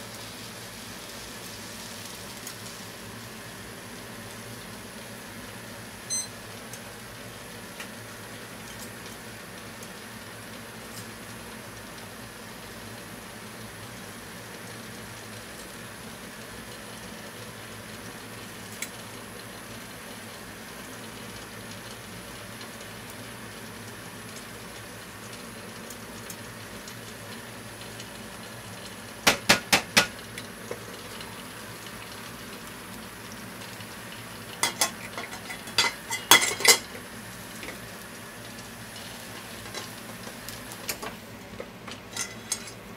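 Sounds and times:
simmering hiss in frying pan: 0.0s - 42.9s
taps on pan and lid: 29.2s - 30.2s.

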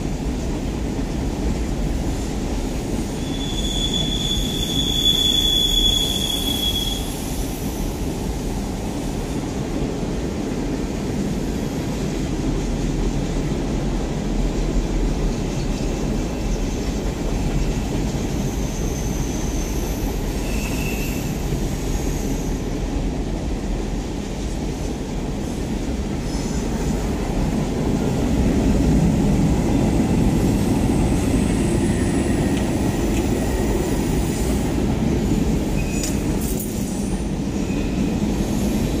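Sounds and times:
train wheels rumbling on rail: 0.0s - 39.0s
high wheel squeal: 3.1s - 7.4s, 18.2s - 22.7s, 35.7s - 36.2s.

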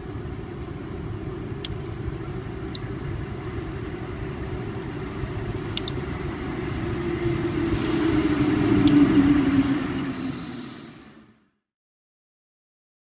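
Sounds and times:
low rumbling with wavering hum: 0.0s - 11.6s
sharp clicks: 5.8s - 6.0s.

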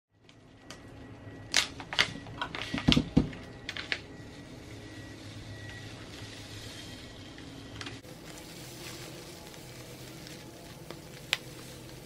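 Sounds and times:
steady low hum: 0.1s - 12.0s
food packet crinkling: 8.0s - 12.0s.

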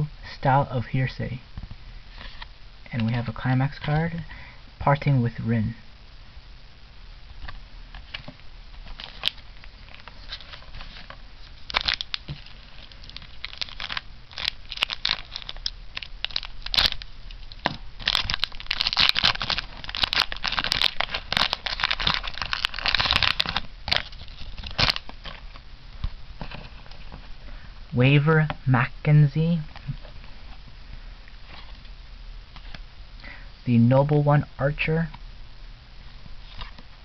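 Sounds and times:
foil wrapper crinkling: 7.4s - 25.6s.

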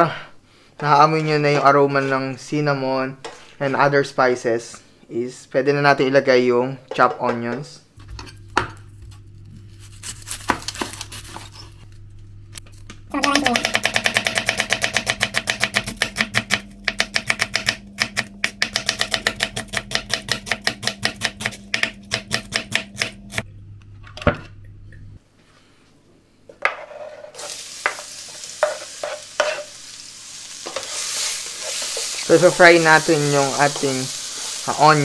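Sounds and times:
knife chopping onion on board: 13.2s - 23.4s
onions sizzling in hot oil: 27.4s - 35.0s.

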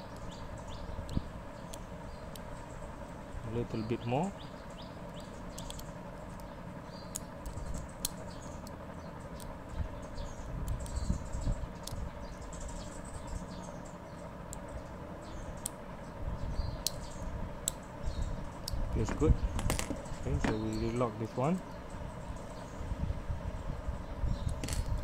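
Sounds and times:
faint clicks and handling noise: 4.7s - 11.0s.

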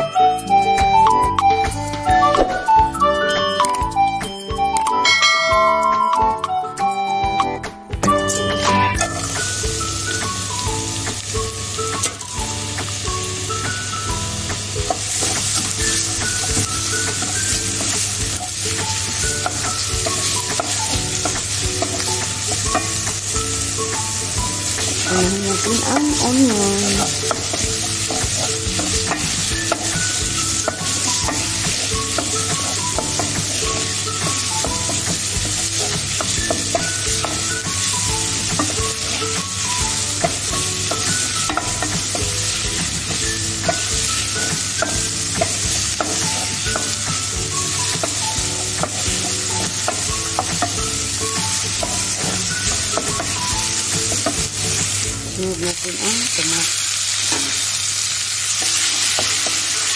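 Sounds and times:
onions sizzling in a pan: 8.1s - 59.9s
spoon knocking against pan: 26.9s - 54.9s.

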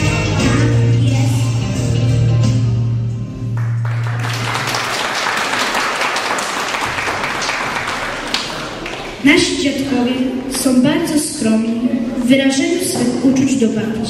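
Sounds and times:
song music: 0.0s - 5.8s
children clapping: 3.6s - 9.3s.

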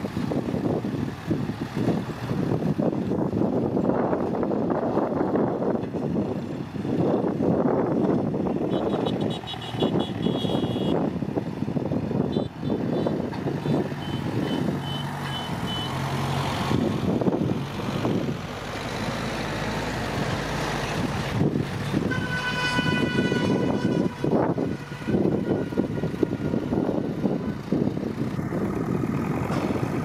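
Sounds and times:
dump truck engines running: 0.0s - 30.0s
vehicle horn: 8.6s - 11.0s, 12.2s - 16.0s, 21.9s - 26.0s.

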